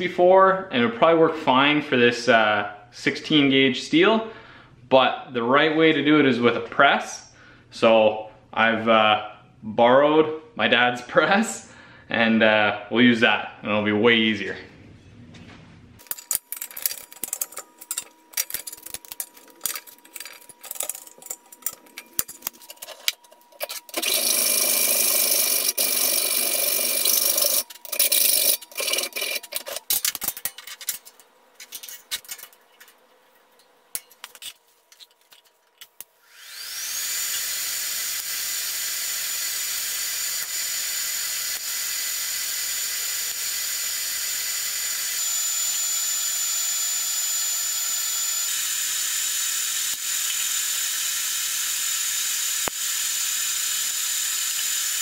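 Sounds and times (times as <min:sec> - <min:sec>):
loud workshop noise: 0:16.0 - 0:33.0, 0:33.9 - 0:55.0
steel parts clicking and knocking: 0:16.0 - 0:36.1
welding hiss with high whine: 0:36.2 - 0:55.0.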